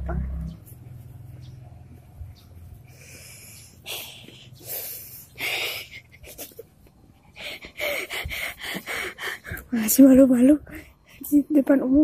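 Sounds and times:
boy stifled breathy laughter: 5.4 - 9.2.

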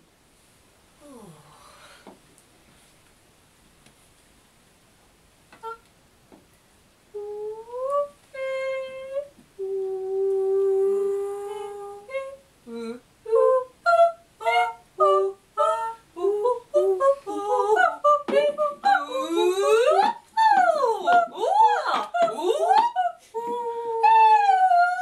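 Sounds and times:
woman singing without words: 5.6 - 5.8, 7.1 - 25.0.

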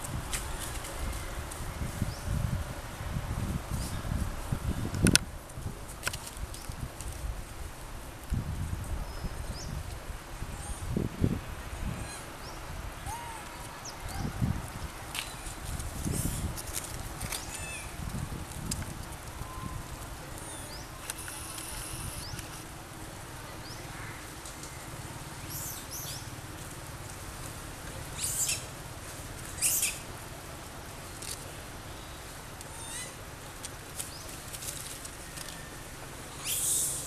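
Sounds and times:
low outdoor rumble: 0.0 - 37.0
small birds chirping: 19.4 - 22.7, 23.5 - 26.4, 28.0 - 28.8, 29.4 - 30.1, 31.8 - 33.2, 36.3 - 37.0.

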